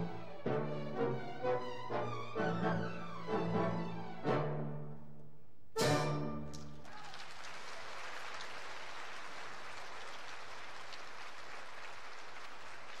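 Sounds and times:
audience applauding: 6.5s - 13.0s.

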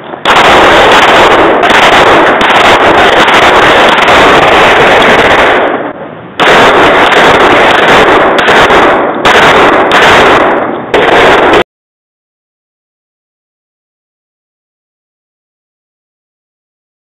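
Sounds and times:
rapid handgun fire: 0.2s - 11.7s.

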